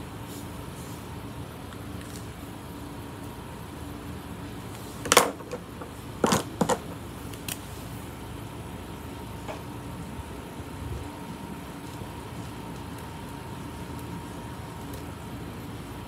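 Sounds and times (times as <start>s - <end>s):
air conditioner running: 0.0s - 16.0s
markers clicking and tapping: 5.1s - 7.6s.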